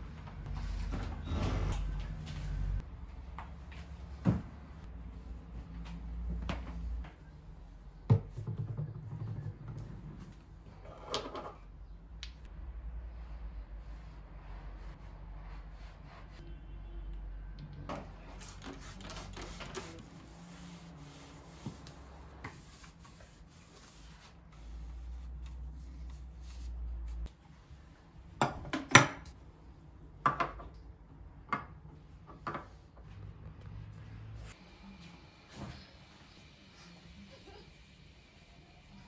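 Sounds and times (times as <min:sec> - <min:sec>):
soft rubbing and handling: 0:18.2 - 0:28.2.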